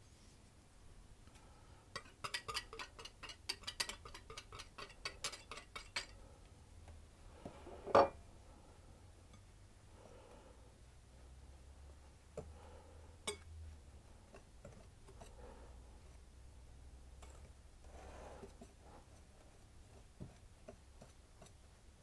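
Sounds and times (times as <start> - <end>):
whisk clicking against bowl: 2.0 - 6.2.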